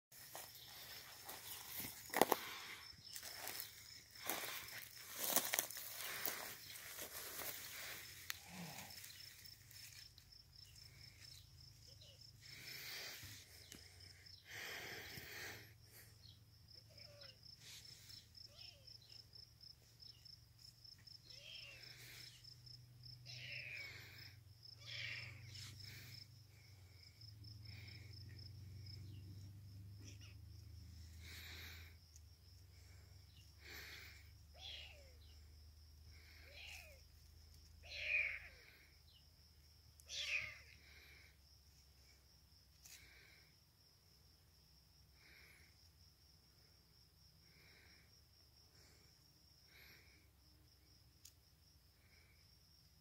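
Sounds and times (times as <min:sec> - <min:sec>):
grass rustling: 0:00.2 - 0:14.0
insect chirping: 0:00.2 - 0:53.0.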